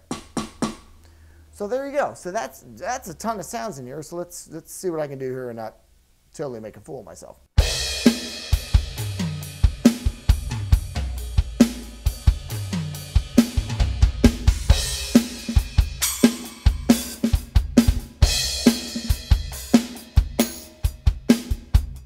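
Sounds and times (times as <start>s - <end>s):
electronic drum groove: 0.0s - 1.0s, 7.6s - 22.0s.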